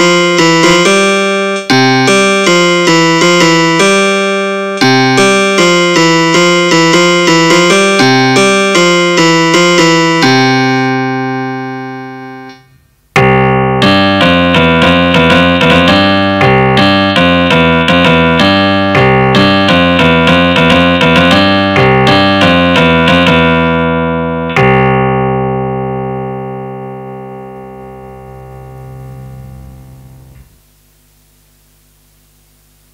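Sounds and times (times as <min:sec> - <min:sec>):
keyboard piano chords: 0:00.0 - 0:30.6
faint hum: 0:26.4 - 0:32.9.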